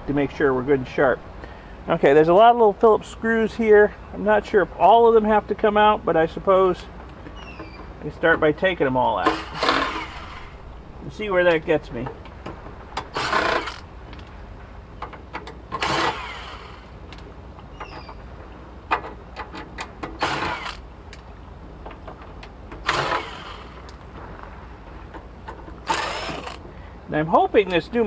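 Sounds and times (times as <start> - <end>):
screws clicking on metal: 13.0 - 13.8, 25.8 - 26.6
electric screwdriver running: 13.2 - 13.8, 25.9 - 26.6.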